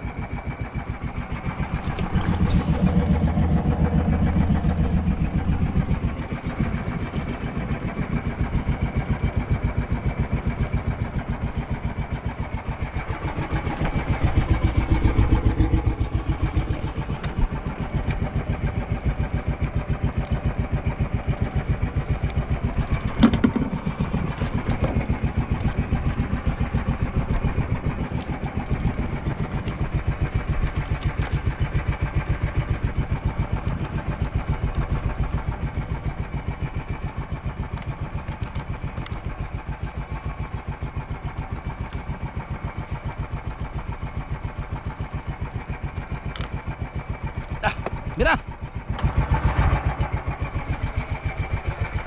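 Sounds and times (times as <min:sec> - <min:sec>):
boat engine running: 0:00.0 - 0:52.0.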